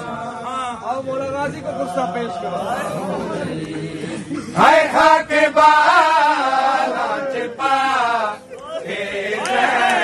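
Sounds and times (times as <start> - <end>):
men chanting a lament: 0.0 - 10.0.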